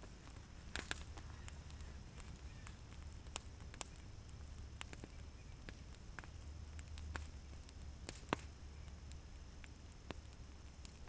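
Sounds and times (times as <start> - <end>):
wood fire crackling and popping: 0.0 - 11.0.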